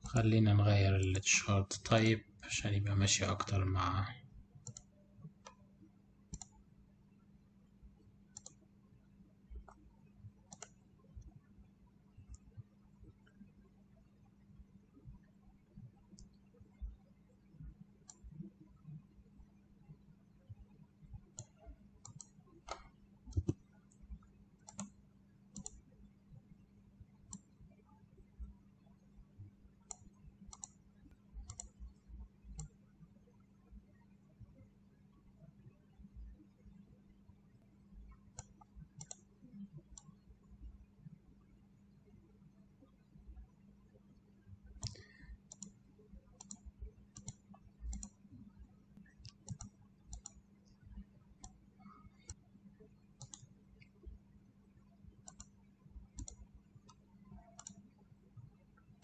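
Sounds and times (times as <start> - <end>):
faint steady hum: 0.0 - 59.0
computer mouse clicks: 4.6 - 6.6, 8.0 - 8.7, 9.5 - 11.4, 12.2 - 12.6, 16.1 - 19.0, 21.1 - 26.0, 27.2 - 27.6, 29.8 - 32.9, 38.0 - 40.6, 44.6 - 59.0.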